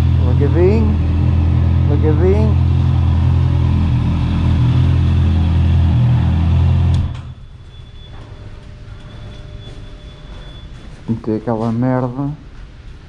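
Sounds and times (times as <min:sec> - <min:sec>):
motorcycle engine idling: 0:00.0 - 0:06.9.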